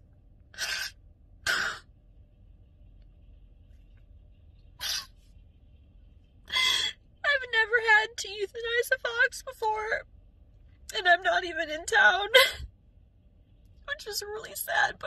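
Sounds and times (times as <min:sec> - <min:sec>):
woman sobbing: 0:12.2 - 0:12.7.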